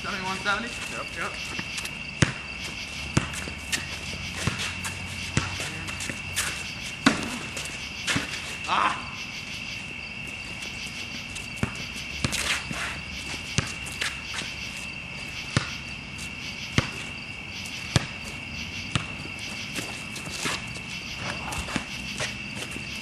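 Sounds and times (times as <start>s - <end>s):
crickets chirping: 0.0s - 23.0s
basketball bouncing: 1.5s - 8.4s, 11.6s - 12.4s, 13.4s - 13.8s, 15.5s - 15.9s, 16.7s - 17.1s, 17.8s - 19.9s.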